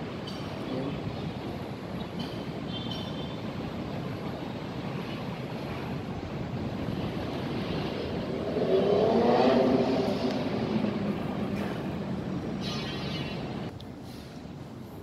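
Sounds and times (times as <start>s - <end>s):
rumbling city noise: 0.0s - 15.0s
motor engine passing: 8.0s - 11.9s.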